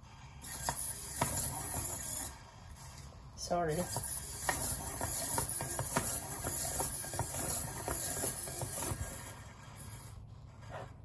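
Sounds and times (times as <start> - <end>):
toy robot servo motors whirring: 0.0 - 11.0
robot feet clicking and tapping: 0.4 - 2.3, 3.8 - 9.4.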